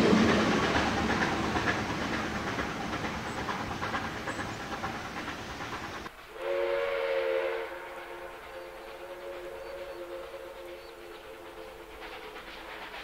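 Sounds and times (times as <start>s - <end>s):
steam train clickety-clack: 0.0s - 13.0s
steam locomotive whistle: 6.3s - 13.0s.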